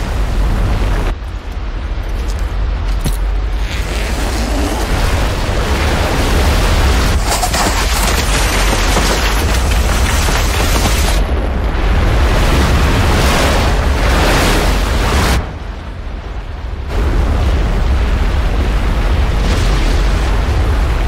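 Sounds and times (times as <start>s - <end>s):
avalanche roaring: 3.4s - 21.0s.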